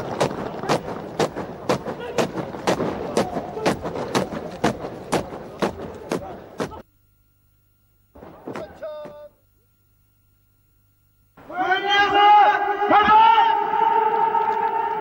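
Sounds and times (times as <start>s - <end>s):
boots marching in unison: 0.0s - 6.8s, 8.2s - 9.3s
background haze: 0.0s - 12.9s.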